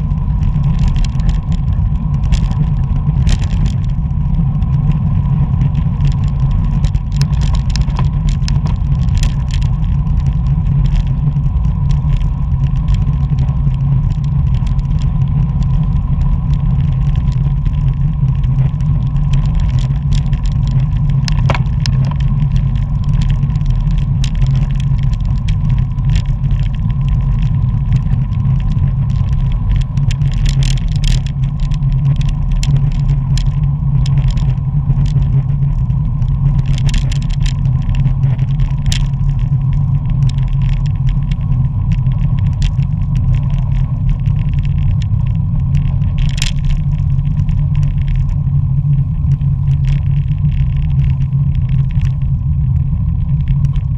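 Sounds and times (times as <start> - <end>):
bicycle clicks and rattles: 0.0 - 53.9
tyre noise on asphalt: 0.0 - 53.9
wind buffeting microphone: 0.0 - 53.9.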